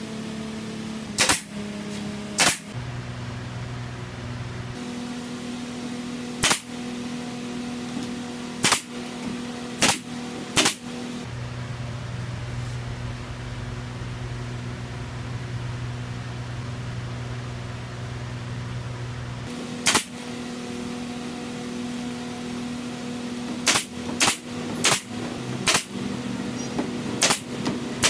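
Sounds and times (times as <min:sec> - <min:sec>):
steady low hum: 0:00.0 - 0:28.0
nail gun firing: 0:01.1 - 0:01.6, 0:02.4 - 0:02.7, 0:06.4 - 0:06.8, 0:08.6 - 0:09.1, 0:09.8 - 0:10.9, 0:19.8 - 0:20.2, 0:23.5 - 0:26.0, 0:27.1 - 0:27.8.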